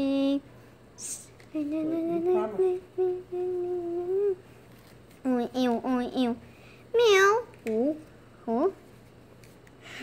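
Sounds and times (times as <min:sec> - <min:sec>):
child humming a tune: 0:01.0 - 0:04.4.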